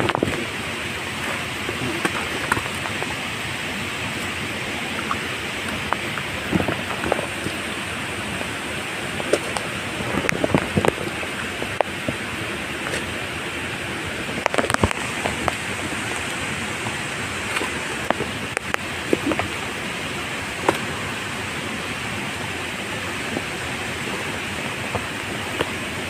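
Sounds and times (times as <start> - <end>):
water rushing: 0.0 - 26.0
fish slapping on wet rock: 1.2 - 3.2, 20.6 - 21.0.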